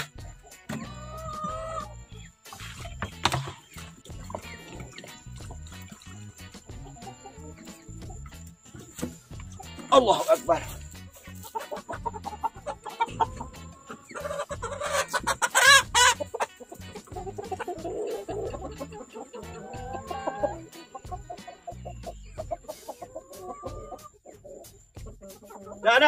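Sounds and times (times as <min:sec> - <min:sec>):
chickens clucking: 0:00.0 - 0:26.0.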